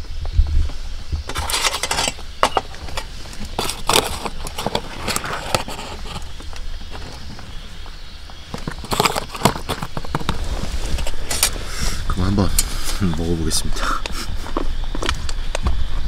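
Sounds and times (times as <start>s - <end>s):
spoon scraping plastic tray: 1.3s - 6.5s, 8.6s - 11.6s.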